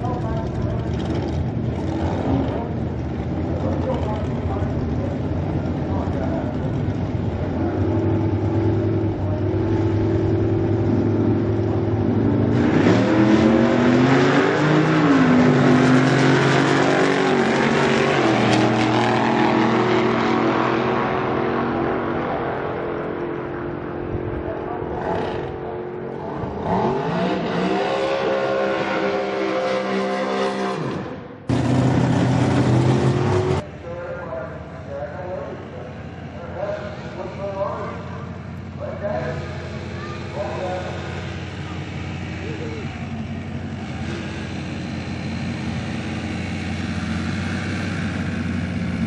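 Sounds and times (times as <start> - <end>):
drag race cars idling: 0.0 - 12.7, 31.4 - 49.0
race cars launching at full throttle: 0.0 - 23.2, 23.8 - 33.8
engine revving up: 7.6 - 33.7, 36.6 - 49.0.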